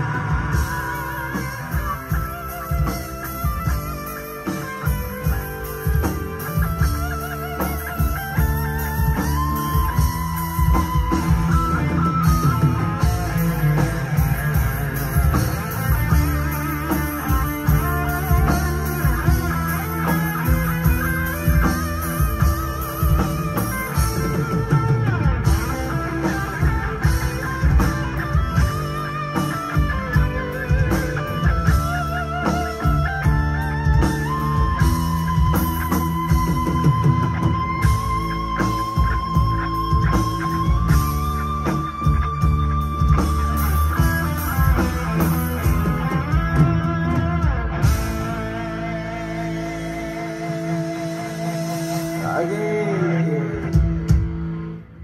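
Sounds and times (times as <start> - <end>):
lead guitar held notes and bends: 0.0 - 55.0
rock band playing: 0.0 - 55.0.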